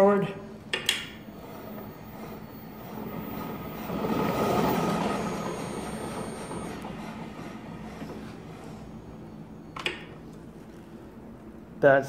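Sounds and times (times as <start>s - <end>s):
faint steady whine: 0.0s - 12.0s
electric motor whirring: 1.1s - 9.3s.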